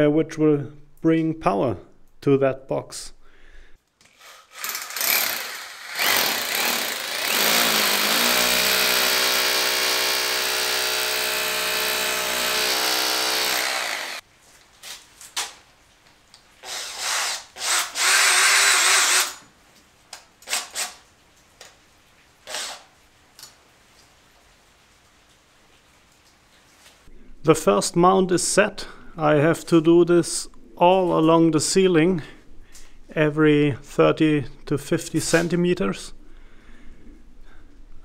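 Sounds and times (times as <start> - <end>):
cordless drill boring into ceiling: 4.2 - 14.2, 16.6 - 19.4, 22.5 - 22.8
short drill bursts: 4.5 - 14.2, 16.6 - 19.4, 22.5 - 22.8.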